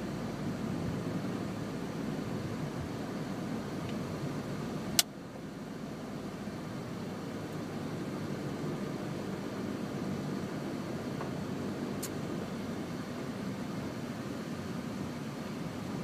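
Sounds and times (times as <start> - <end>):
car engine and road noise: 0.0 - 16.0
sharp click: 12.0 - 12.2.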